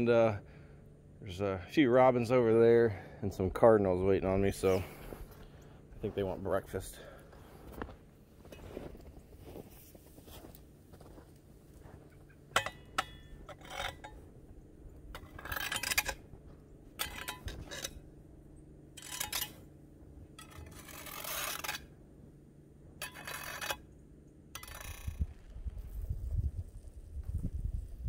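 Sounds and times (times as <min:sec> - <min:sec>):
boots crunching through snow: 0:06.0 - 0:12.3
hoe scraping snow: 0:06.0 - 0:12.3, 0:20.4 - 0:21.9.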